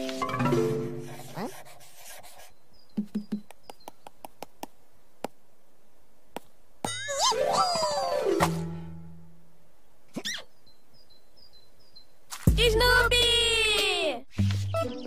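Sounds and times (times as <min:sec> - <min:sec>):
faint chirp-like blips: 0:02.4 - 0:04.2
cartoon music: 0:06.9 - 0:08.5.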